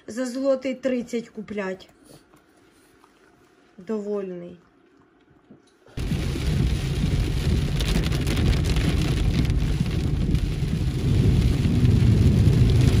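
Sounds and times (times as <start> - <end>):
heavy rain pouring: 6.0 - 13.0.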